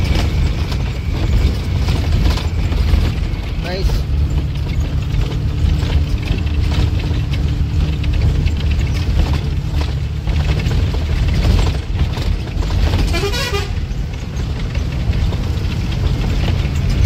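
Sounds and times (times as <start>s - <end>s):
bus engine and road rumble: 0.0s - 17.0s
warbling vehicle horn: 12.9s - 13.9s.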